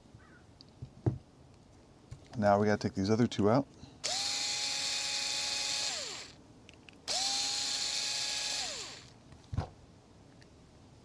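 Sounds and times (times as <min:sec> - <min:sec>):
power screwdriver whining: 0:04.0 - 0:06.4, 0:07.1 - 0:09.2.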